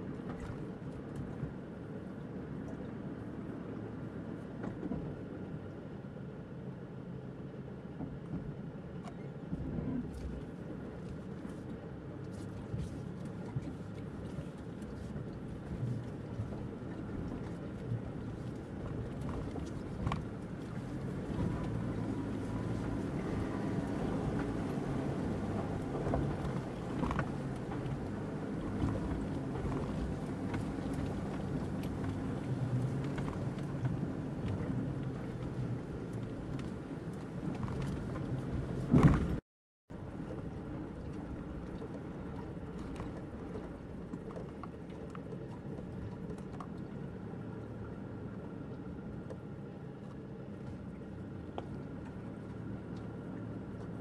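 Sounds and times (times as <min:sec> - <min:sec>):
vehicle engine running low: 0:00.0 - 0:54.0
vehicle knocks and clunks: 0:25.3 - 0:39.4.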